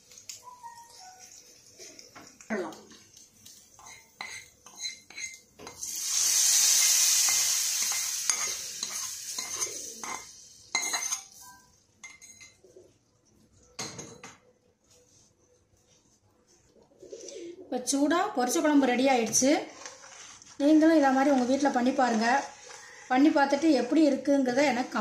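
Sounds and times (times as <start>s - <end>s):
spoon clinking on metal pans: 3.8s - 5.8s, 6.8s - 12.6s
hot oil hissing in a pan: 5.7s - 10.5s.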